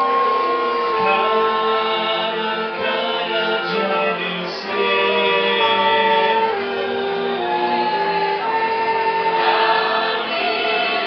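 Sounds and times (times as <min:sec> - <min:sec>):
group of voices singing: 0:00.0 - 0:11.0
wind band playing slow tune: 0:00.0 - 0:11.0.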